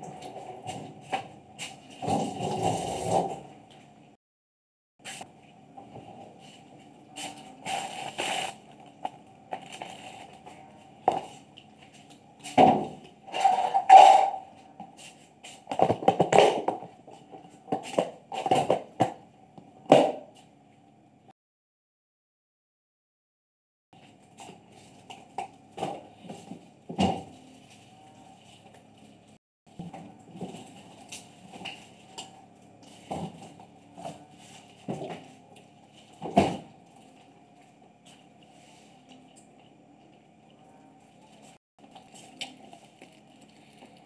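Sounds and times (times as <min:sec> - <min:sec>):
cats eating: 0:36.8 - 0:44.0
cats chewing: 0:41.8 - 0:44.0.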